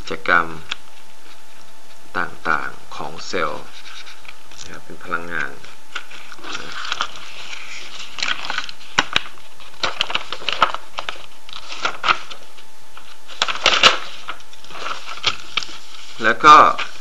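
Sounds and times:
scratchy rustles: 3.3 - 4.7, 5.5 - 17.0.

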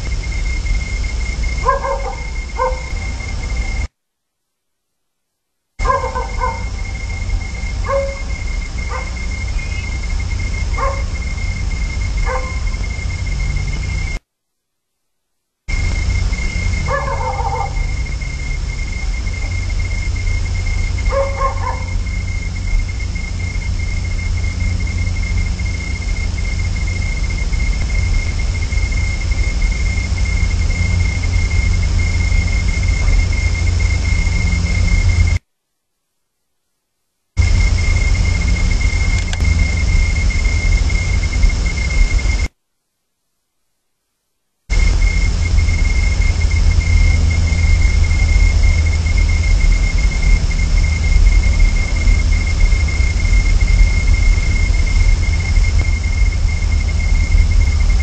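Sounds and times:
thin steady high whine: 0.0 - 58.0
low rumble: 5.9 - 14.2, 15.7 - 35.4, 37.4 - 42.5, 44.7 - 58.0.

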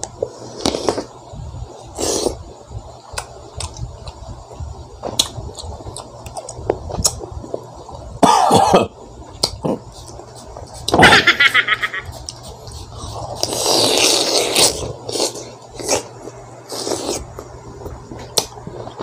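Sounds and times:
crunchy bite: 13.3 - 17.4.

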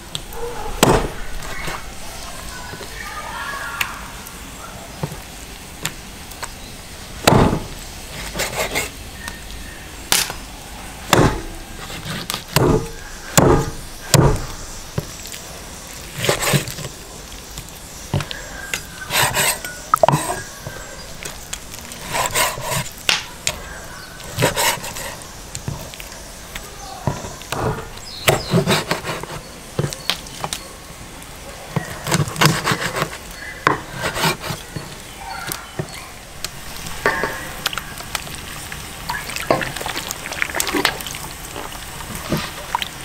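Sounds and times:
cleaver chopping meat: 0.8 - 1.2, 7.2 - 7.7, 11.1 - 15.2, 16.1 - 16.9, 22.0 - 23.3, 24.2 - 25.8, 27.0 - 30.1, 31.8 - 34.9
blade knocking on wood: 12.6 - 15.1.

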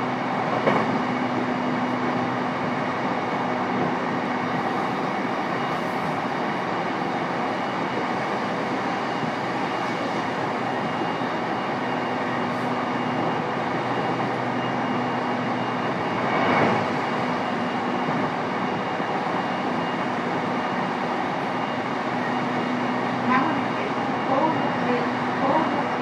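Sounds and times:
train wheels and motor rumble: 0.0 - 26.0.

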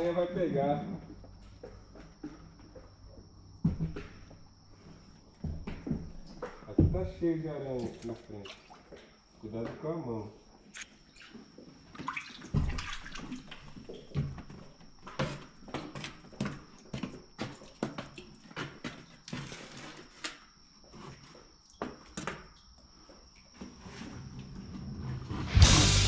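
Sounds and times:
water splashes: 7.7 - 8.9, 10.7 - 14.2.

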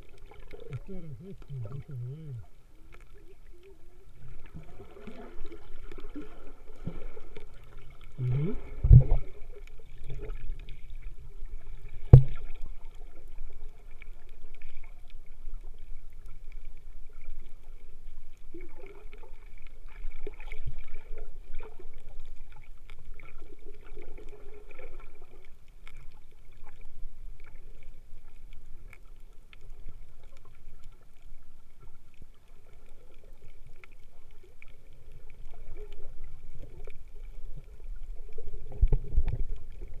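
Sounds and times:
water sloshing: 0.0 - 16.5
muffled underwater rumble: 0.0 - 40.0.

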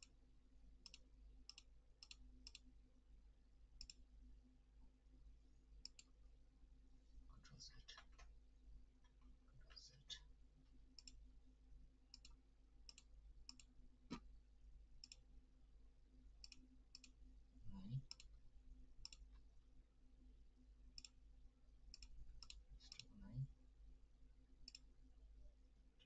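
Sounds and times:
computer mouse clicking: 0.8 - 2.7, 3.8 - 4.0, 5.8 - 6.1, 11.0 - 11.2, 12.1 - 14.2, 15.0 - 15.2, 16.4 - 17.2, 18.1 - 18.3, 19.0 - 19.4, 21.0 - 21.2, 21.9 - 23.1, 24.7 - 24.9.

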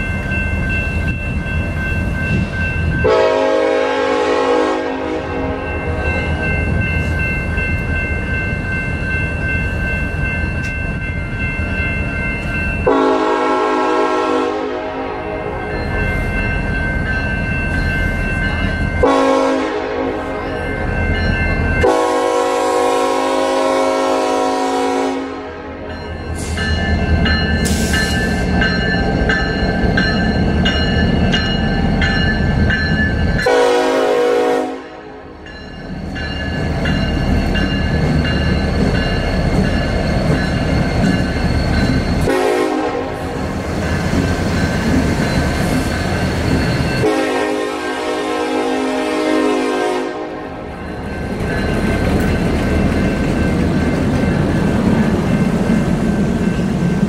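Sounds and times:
diesel locomotive engine rumbling: 0.0 - 57.0
train horn blasts: 3.0 - 6.0, 12.8 - 15.6, 19.0 - 20.5, 21.8 - 25.9, 33.4 - 35.3, 42.2 - 43.3, 47.0 - 50.5.

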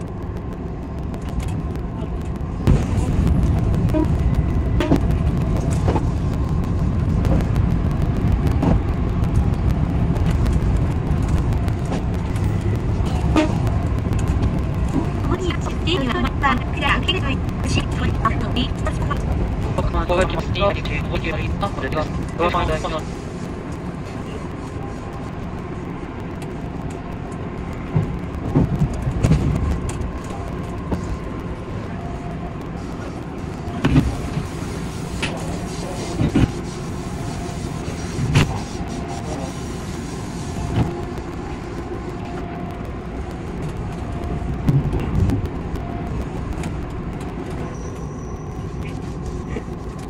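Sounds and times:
electric train rumble: 0.0 - 50.0
knocks and thumps: 44.6 - 45.4.

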